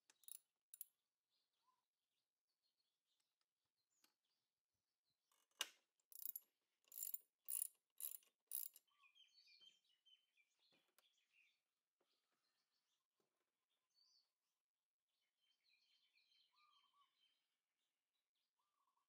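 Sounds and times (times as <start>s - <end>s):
hand ratchet clicking: 0.1s - 0.8s, 6.1s - 8.8s.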